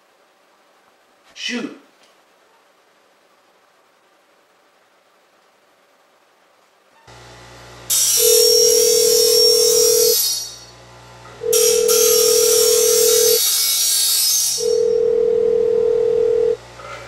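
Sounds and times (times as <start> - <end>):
loud high hiss: 7.9 - 10.7
mobile phone ringing: 8.2 - 10.1, 11.4 - 13.4, 14.6 - 16.6.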